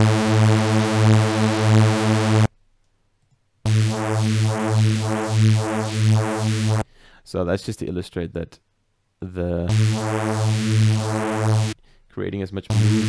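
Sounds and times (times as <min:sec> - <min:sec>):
buzzy synth bass note: 0:00.0 - 0:02.5, 0:03.7 - 0:06.8, 0:09.7 - 0:11.8, 0:12.7 - 0:13.0.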